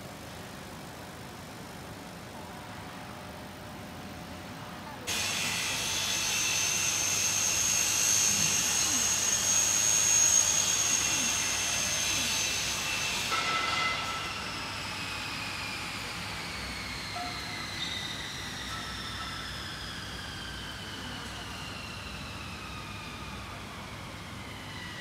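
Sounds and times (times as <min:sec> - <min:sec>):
thin high whine: 0:05.1 - 0:25.0.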